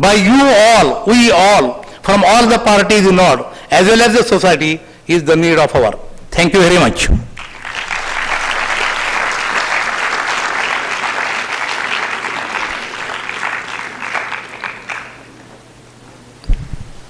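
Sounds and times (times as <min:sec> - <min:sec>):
audience applauding: 0:07.4 - 0:15.6.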